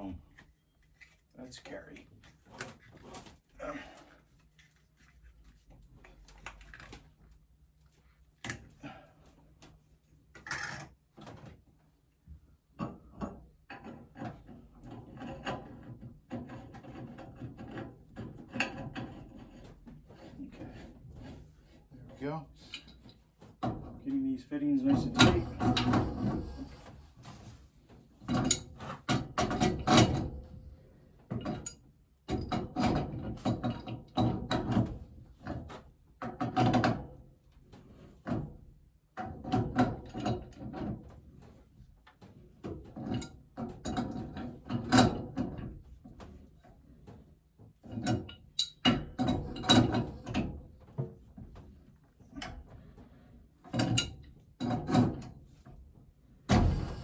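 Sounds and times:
pipe wrench clicking and grating: 10.3s - 11.0s, 25.0s - 26.9s.

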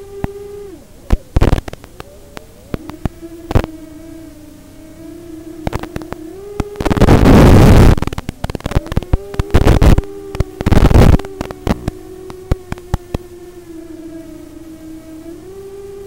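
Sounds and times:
bursts of static: 0.0s - 16.0s
steady low tone: 0.0s - 16.0s
sharp radio crackles: 1.1s - 3.8s, 5.6s - 13.2s.

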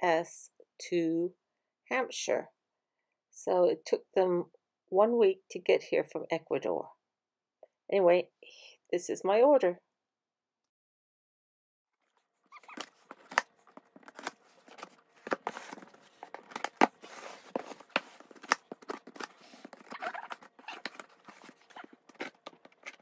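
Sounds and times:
cardboard rustling: 12.6s - 23.0s.

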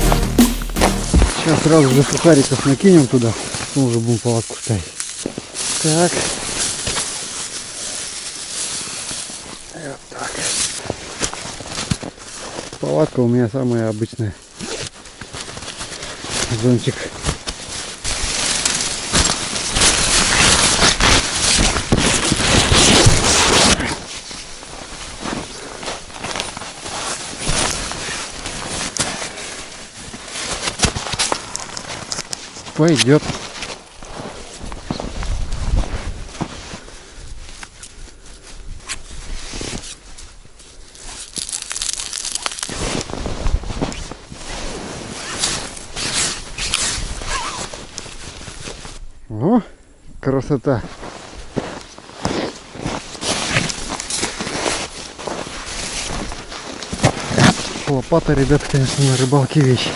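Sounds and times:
crunching of packed snow: 0.0s - 49.0s, 50.7s - 59.9s
nylon fabric rustling and flapping: 14.6s - 36.8s, 38.7s - 49.0s, 50.9s - 59.9s.

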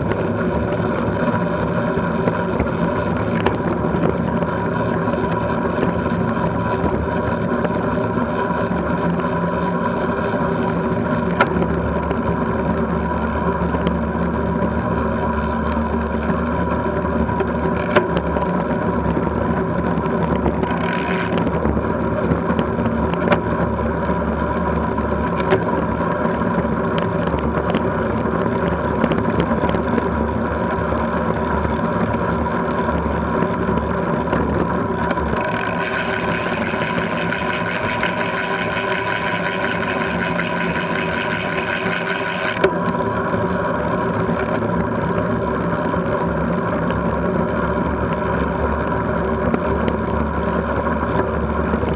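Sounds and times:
wind and road noise: 0.0s - 51.9s
sharp clicks from bumps: 2.2s - 9.0s, 11.1s - 12.9s, 15.6s - 43.0s.

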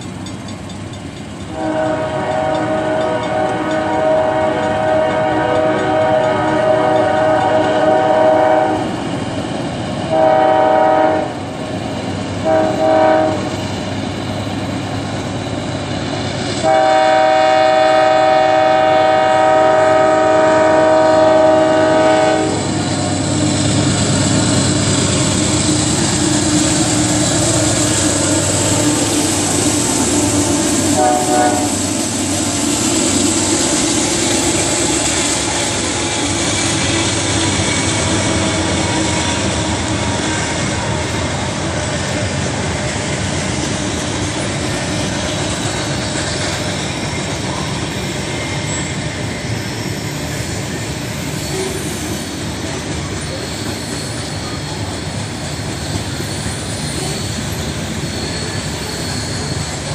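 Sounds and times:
train rumbling past on rails: 0.0s - 59.9s
locomotive horn blasts: 1.5s - 8.9s, 10.1s - 11.4s, 12.4s - 13.5s, 16.6s - 22.8s, 30.9s - 31.8s.

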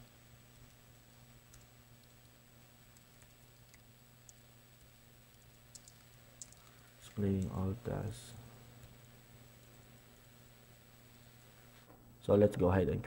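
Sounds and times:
low steady hum: 0.0s - 13.0s
faint keyboard typing: 1.5s - 7.6s.

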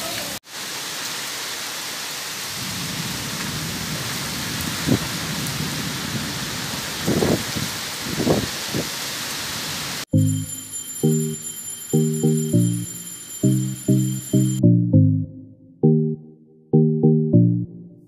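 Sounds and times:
steady rain falling: 0.0s - 10.1s.

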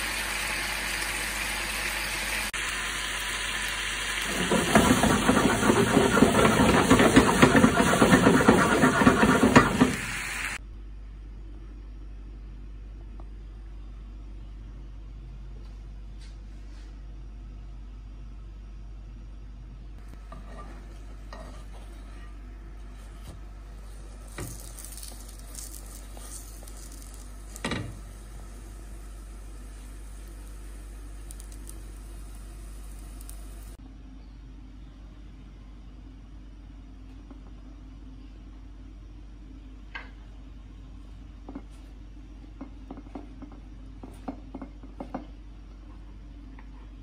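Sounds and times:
flatbread sizzling in pan: 0.0s - 10.6s, 23.8s - 33.8s.

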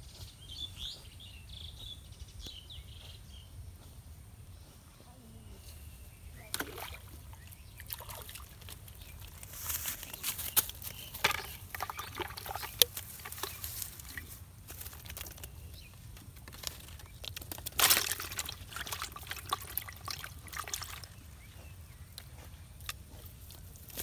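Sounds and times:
water splashing in a bucket: 6.4s - 9.5s, 11.2s - 15.5s, 16.4s - 21.3s.

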